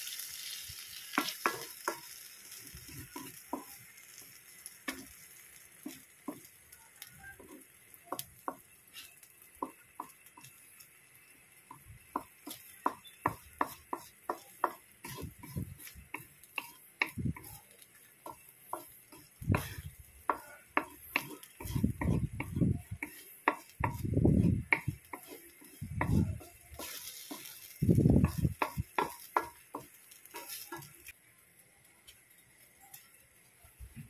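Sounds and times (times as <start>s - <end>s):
light sizzle: 0.0s - 34.0s
wooden spatula scraping a wok: 0.2s - 6.6s, 12.2s - 31.1s.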